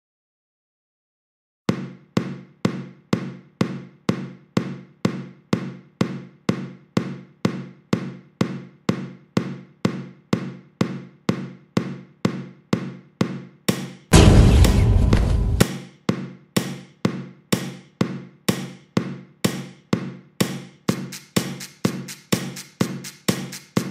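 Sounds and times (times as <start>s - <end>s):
loud crash: 14.1s - 15.6s
low ringing drum hits: 14.1s - 15.6s.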